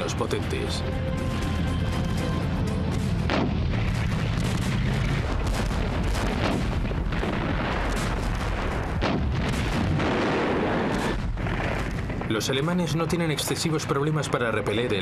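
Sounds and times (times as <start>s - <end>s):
gunfire: 3.2s - 12.3s.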